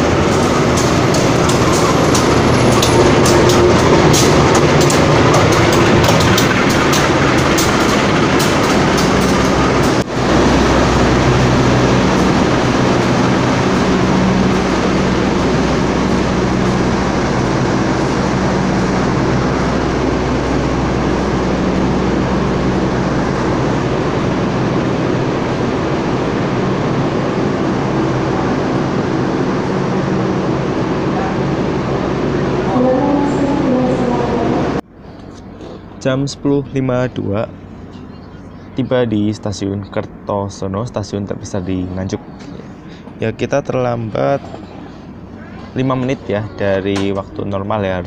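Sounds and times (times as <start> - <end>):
wheels clicking over rail joints: 0.0 - 10.1
train rumbling past: 0.0 - 48.0.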